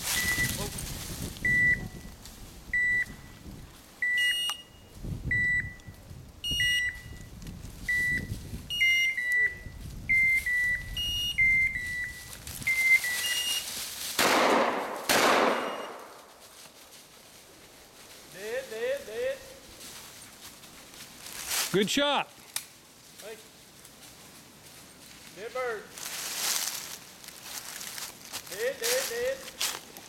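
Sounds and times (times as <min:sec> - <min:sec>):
short electronic beeps: 0:00.1 - 0:00.7, 0:01.4 - 0:02.1, 0:02.8 - 0:03.4, 0:04.0 - 0:07.3, 0:07.9 - 0:13.7, 0:15.6 - 0:16.0
shotgun shots: 0:14.2 - 0:16.3.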